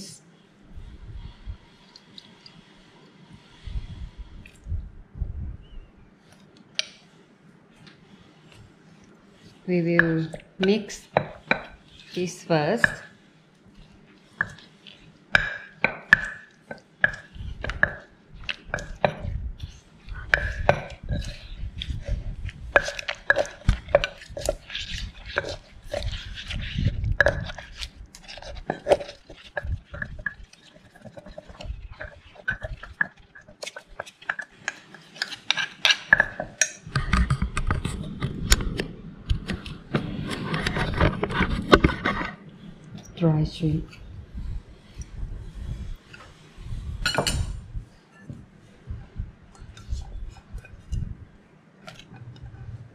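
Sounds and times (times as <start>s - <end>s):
wooden pestle pounding in clay mortar: 20.1s - 27.8s.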